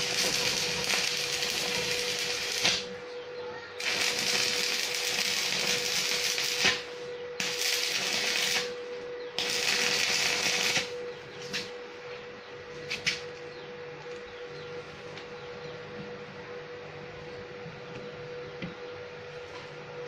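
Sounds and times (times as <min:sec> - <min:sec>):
welding arc crackling: 0:00.0 - 0:03.0, 0:03.8 - 0:11.7
steady hum: 0:00.0 - 0:20.0.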